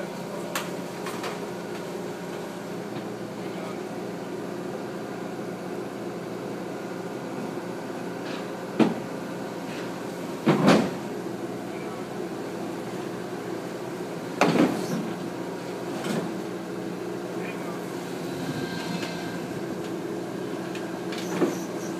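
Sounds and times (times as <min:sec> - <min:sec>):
excavator diesel engine running: 0:00.0 - 0:21.9
metallic clanks of steel tracks: 0:18.5 - 0:20.0.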